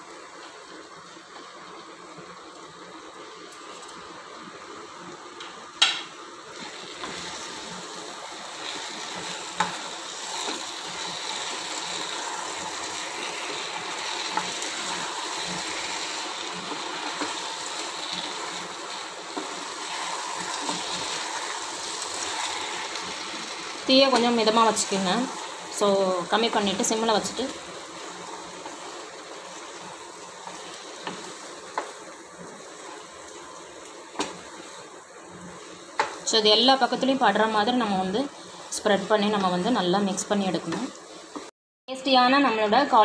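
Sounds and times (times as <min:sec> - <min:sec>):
sauce sizzling in a pan: 0:00.0 - 0:43.0
spatula scraping and tapping pan: 0:30.4 - 0:32.1, 0:34.1 - 0:34.8, 0:35.6 - 0:36.3.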